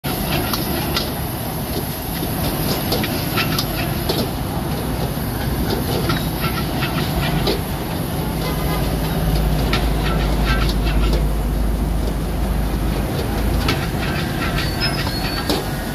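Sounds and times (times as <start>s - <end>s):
metal ladle scraping a wok: 5.2s - 12.1s, 13.6s - 15.9s.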